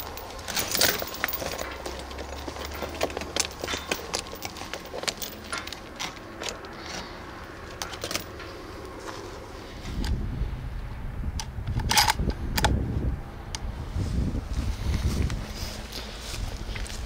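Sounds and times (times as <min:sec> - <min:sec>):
sharp clicks and rattles: 0:00.0 - 0:08.6, 0:11.4 - 0:12.8
wind rumble on microphone: 0:09.6 - 0:17.0.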